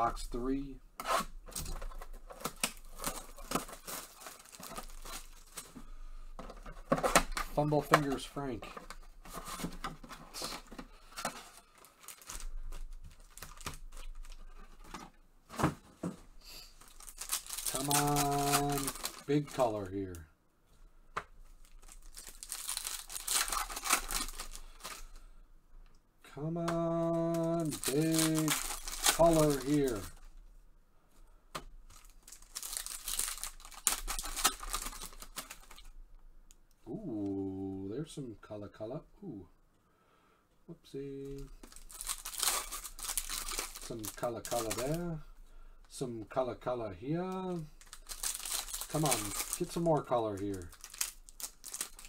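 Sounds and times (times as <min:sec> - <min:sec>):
foil packs crinkling: 0:01.5 - 0:05.9, 0:06.6 - 0:14.9, 0:16.7 - 0:20.2, 0:21.6 - 0:25.2, 0:26.8 - 0:30.2, 0:31.9 - 0:35.9, 0:41.4 - 0:45.2, 0:47.4 - 0:52.0.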